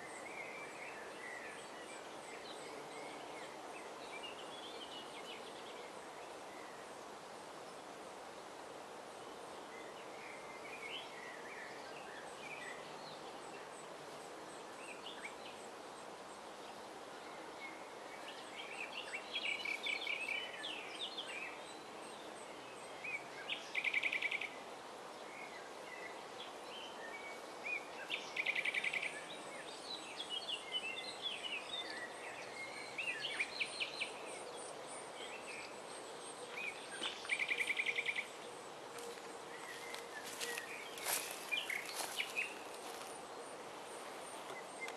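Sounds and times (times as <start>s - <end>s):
steady background noise: 0.0s - 44.9s
nightingale singing: 22.5s - 24.7s, 26.8s - 44.9s.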